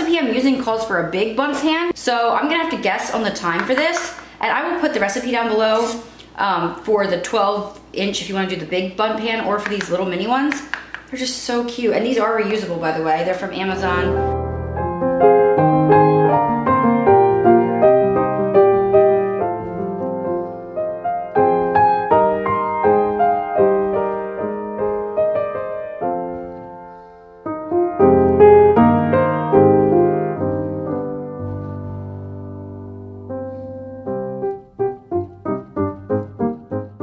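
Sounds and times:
piano melody: 13.5s - 37.0s.

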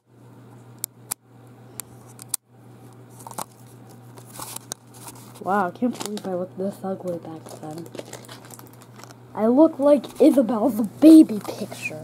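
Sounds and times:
steady low hum: 0.0s - 12.0s
handling clicks and rustles: 7.0s - 9.2s.

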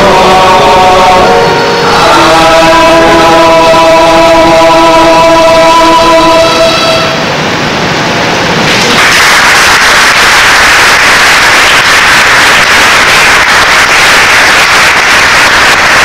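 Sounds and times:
audience applauding: 8.7s - 16.0s.

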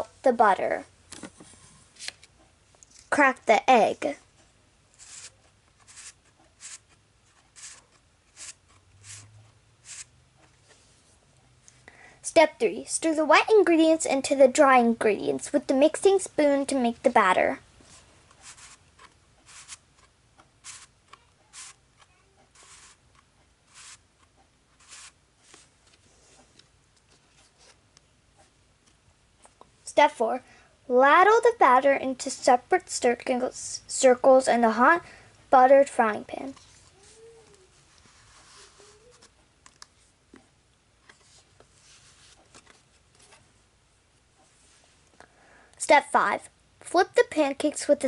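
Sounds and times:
cardboard wheel scraping: 22.5s - 23.0s, 24.8s - 25.7s
soft clicks and taps of pages: 39.2s - 43.4s.

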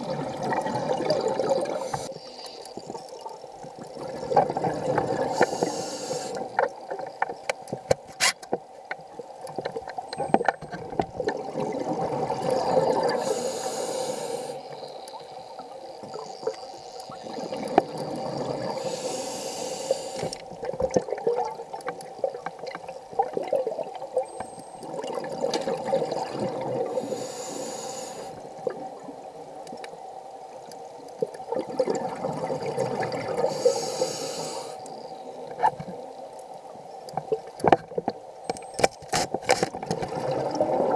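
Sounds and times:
bubbling gurgle of exhaled air: 0.0s - 7.0s, 10.9s - 29.3s, 31.2s - 36.1s, 39.8s - 40.9s
regulator inhalation hiss: 1.7s - 2.6s, 5.3s - 6.4s, 13.2s - 14.8s, 18.7s - 20.4s, 26.9s - 28.4s, 33.4s - 35.0s.

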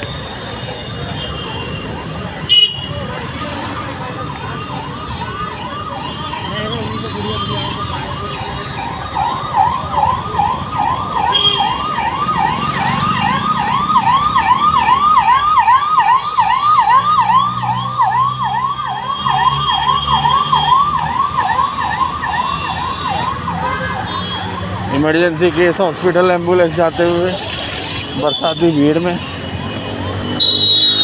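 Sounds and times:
ambulance siren yelping: 3.8s - 27.5s.

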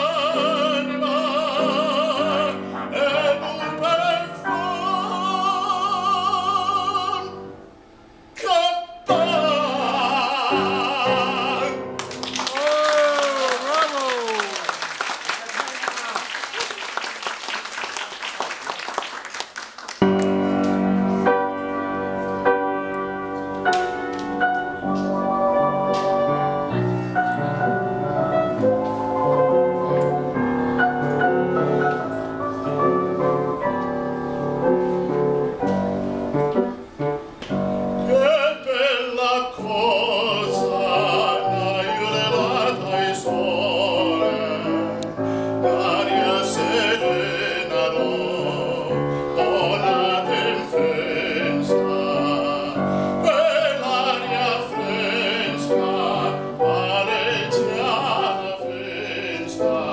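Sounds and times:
man singing operatically: 0.0s - 7.4s, 8.3s - 12.0s, 38.1s - 59.9s
grand piano playing: 0.0s - 12.8s, 17.7s - 59.9s
applause: 12.0s - 20.8s.

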